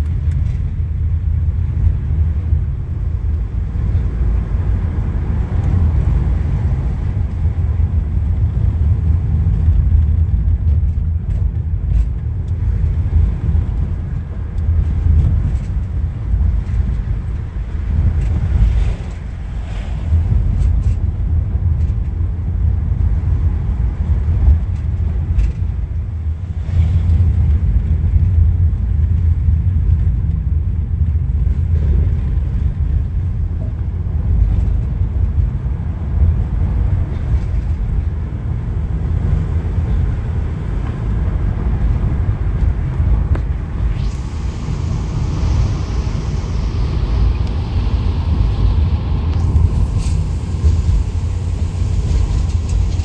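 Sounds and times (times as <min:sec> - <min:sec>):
vehicle rumble from inside cabin: 0:00.0 - 0:53.0
hiss: 0:43.8 - 0:53.0.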